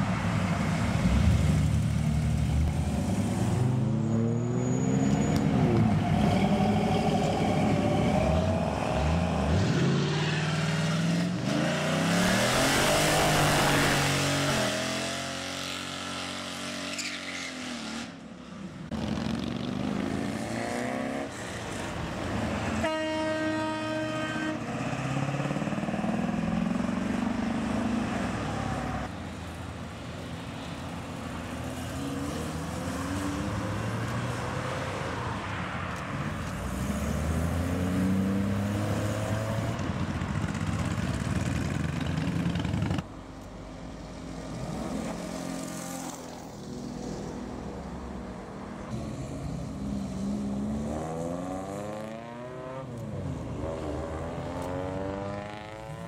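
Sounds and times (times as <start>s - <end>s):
car engines revving: 0.0s - 18.2s, 30.9s - 43.2s, 44.1s - 56.0s
car horn: 22.8s - 24.7s.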